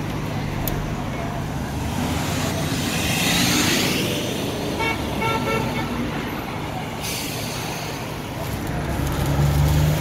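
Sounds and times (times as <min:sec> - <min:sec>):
vehicle passing: 0:01.8 - 0:04.7, 0:08.7 - 0:10.0.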